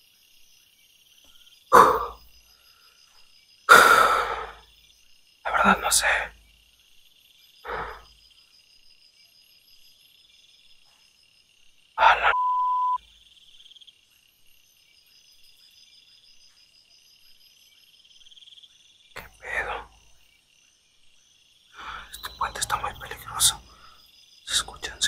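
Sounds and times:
night insects chirping: 0.0 - 25.0
sharp steady beep: 12.3 - 13.0.

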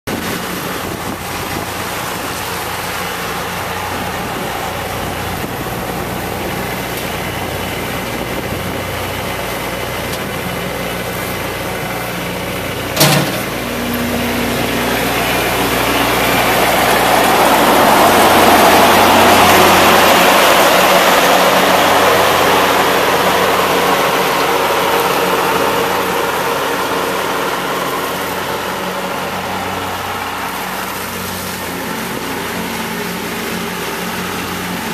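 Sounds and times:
rotary cutter mowing weeds: 0.1 - 34.9
tractor diesel engine running: 0.1 - 34.9
sharp knock: 13.0 - 13.5.

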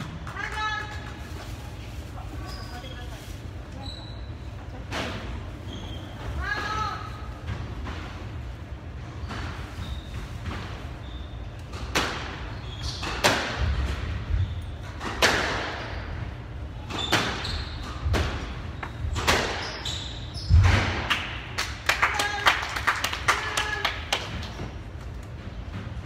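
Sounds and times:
shoes squeaking on wooden floor: 9.2 - 11.5.

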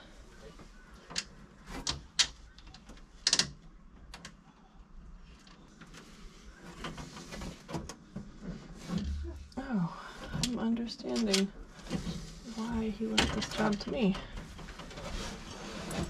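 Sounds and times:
faint rustling: 5.2 - 16.0.

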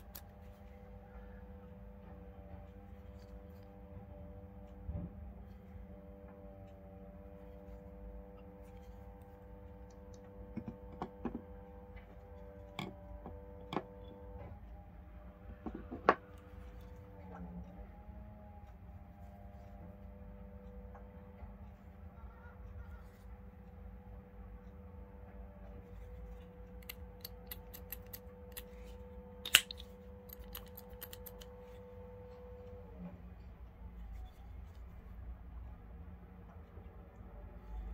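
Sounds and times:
faint steady hum: 0.0 - 37.9
knives clicking on wooden table: 29.5 - 31.5.

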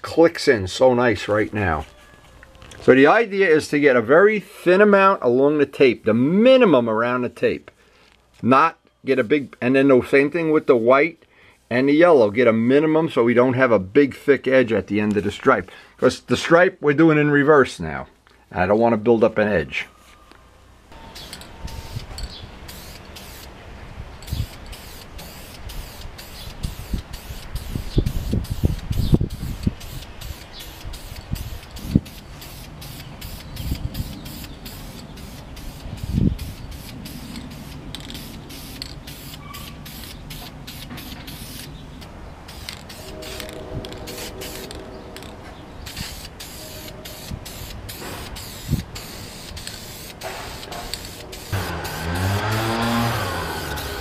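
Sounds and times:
aerosol can spraying: 21.2 - 23.6, 24.3 - 41.7, 42.5 - 44.8, 45.9 - 54.0.

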